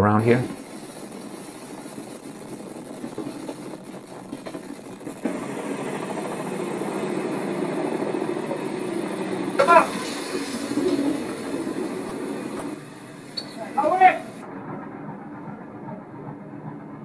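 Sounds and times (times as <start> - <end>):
ship engine rumble: 0.0 - 17.0.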